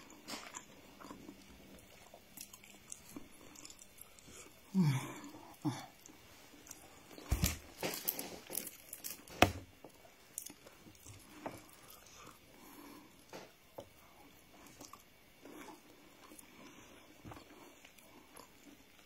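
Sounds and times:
person chewing food: 0:00.0 - 0:19.0.

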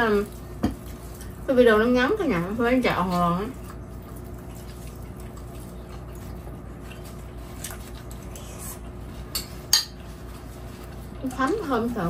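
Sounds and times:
soft chewing: 0:03.1 - 0:12.0.

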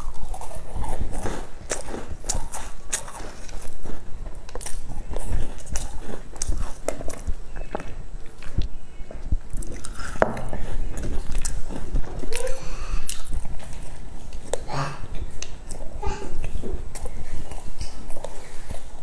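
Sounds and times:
crust crackles: 0:00.0 - 0:19.0
person chewing flaky pastry: 0:00.0 - 0:19.0.

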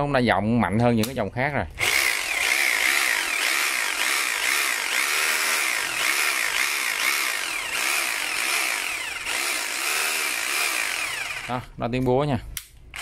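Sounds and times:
rotary hammer running: 0:01.8 - 0:11.6.

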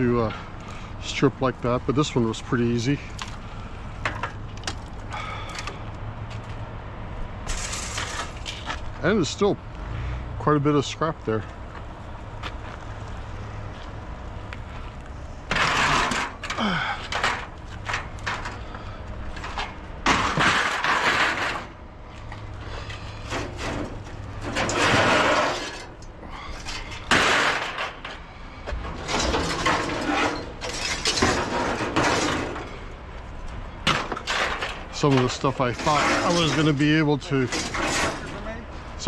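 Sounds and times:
scrap metal crashing onto pile: 0:07.4 - 0:08.8, 0:15.5 - 0:18.7, 0:19.3 - 0:21.8, 0:23.2 - 0:26.0, 0:26.6 - 0:28.2, 0:28.8 - 0:32.9, 0:33.8 - 0:38.5.

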